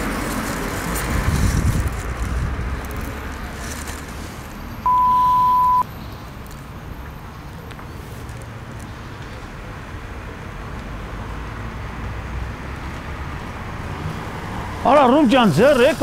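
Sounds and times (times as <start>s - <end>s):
traffic rumble: 0.0s - 16.0s
censor bleep tone: 4.9s - 5.8s.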